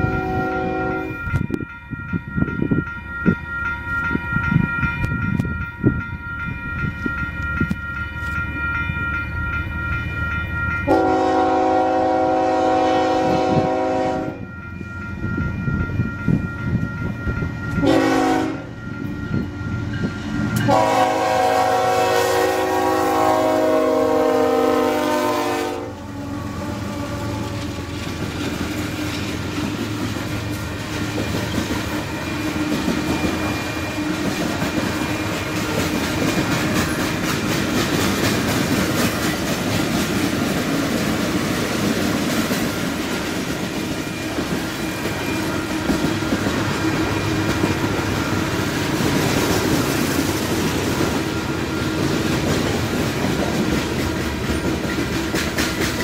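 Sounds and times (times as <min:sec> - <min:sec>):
locomotive air horn chord: 0:00.0 - 0:01.2, 0:10.9 - 0:14.5, 0:17.8 - 0:18.8, 0:20.6 - 0:27.9
freight cars rumbling on rails: 0:00.0 - 0:56.0.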